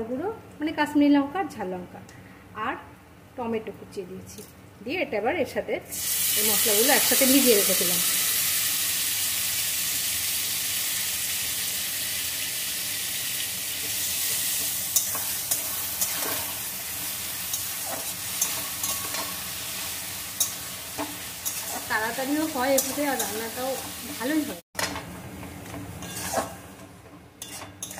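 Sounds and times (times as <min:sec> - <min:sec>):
spice mixture sizzling in hot oil: 0:05.9 - 0:24.6, 0:25.9 - 0:27.9
metal spatula scraping pan: 0:14.3 - 0:16.7, 0:17.4 - 0:24.2, 0:25.7 - 0:26.8, 0:27.4 - 0:27.9.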